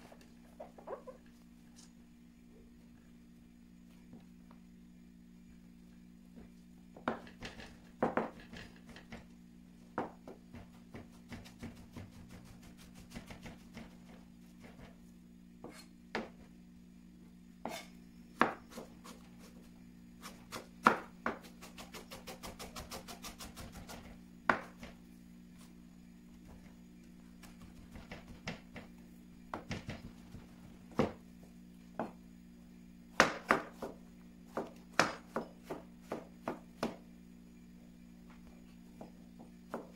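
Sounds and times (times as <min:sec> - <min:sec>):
knife chopping on cutting board: 0:10.0 - 0:13.9, 0:17.6 - 0:19.2, 0:20.2 - 0:24.9, 0:33.2 - 0:37.0.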